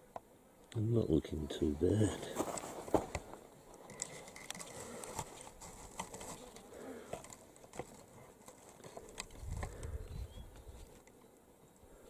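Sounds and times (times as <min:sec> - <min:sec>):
flies buzzing: 0:00.0 - 0:12.0
small clicks and rustles: 0:02.5 - 0:09.9.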